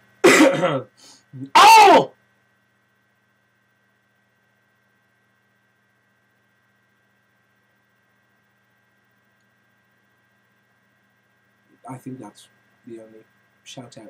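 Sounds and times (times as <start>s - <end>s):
faint electrical hum and hiss: 0.0s - 14.0s.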